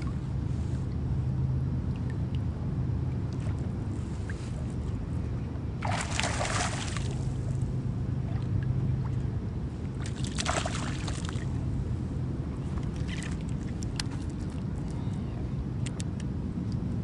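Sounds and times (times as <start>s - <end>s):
fish splashing at surface: 5.8s - 7.2s.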